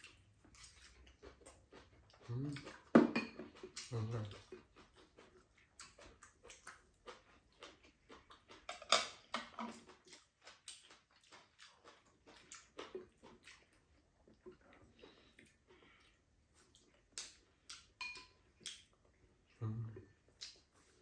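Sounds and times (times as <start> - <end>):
chewing and mouth noises: 0.0 - 21.0
chopsticks and spoon clicking bowls: 17.2 - 18.8.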